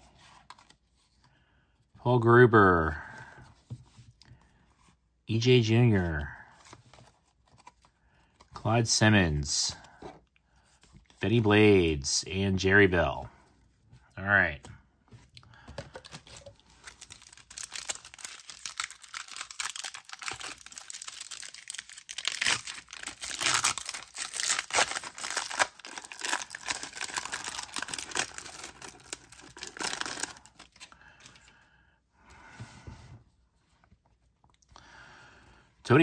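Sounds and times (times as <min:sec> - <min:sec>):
card pack wrapper crinkling: 0:15.6 - 0:31.4.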